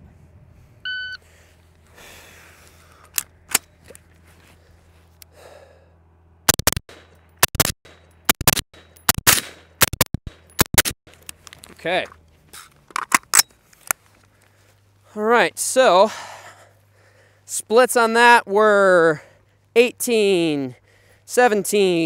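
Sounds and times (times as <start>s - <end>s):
suppressed rifle shots: 8.3s - 10.0s.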